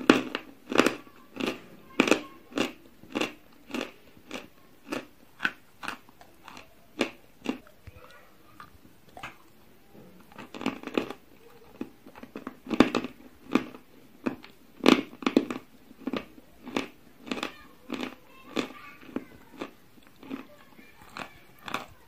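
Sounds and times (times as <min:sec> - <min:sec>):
chewing crunchy chalk: 0:00.0 - 0:09.6, 0:10.2 - 0:22.0.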